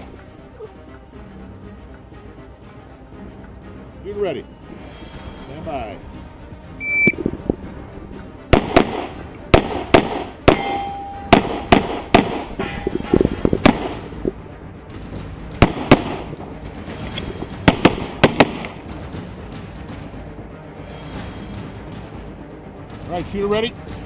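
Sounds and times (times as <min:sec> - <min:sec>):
pistol shots: 0:08.5 - 0:14.2, 0:14.9 - 0:20.0.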